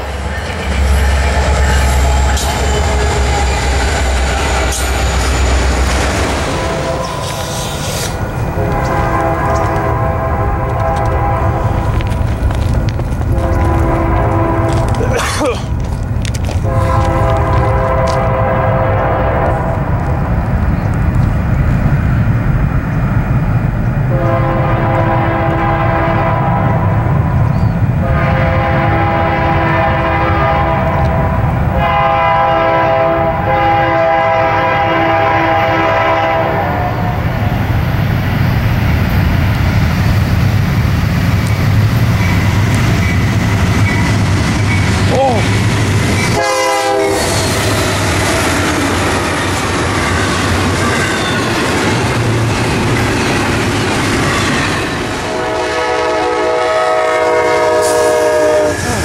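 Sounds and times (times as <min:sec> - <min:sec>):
train wheels clacking over rails: 0:00.0 - 0:18.5, 0:37.7 - 0:59.0
locomotive rumble: 0:00.0 - 0:59.0
locomotive air horn blasts: 0:06.4 - 0:11.9, 0:13.3 - 0:15.2, 0:16.6 - 0:19.7, 0:24.1 - 0:27.0, 0:28.0 - 0:37.3, 0:46.3 - 0:47.6, 0:55.2 - 0:59.0.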